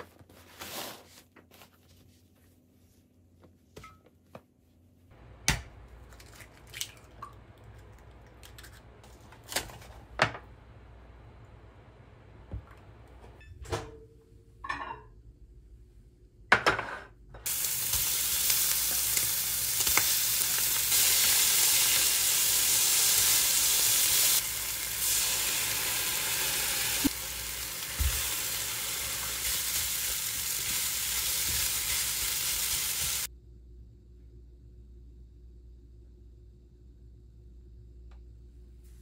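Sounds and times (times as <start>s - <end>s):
food sizzling in a frying pan: 17.5s - 33.3s.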